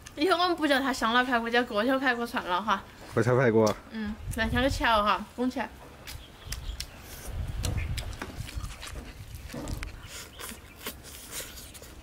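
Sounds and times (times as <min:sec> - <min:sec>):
wet chewing and smacking: 0:06.0 - 0:12.0
lip smacks: 0:06.1 - 0:12.0.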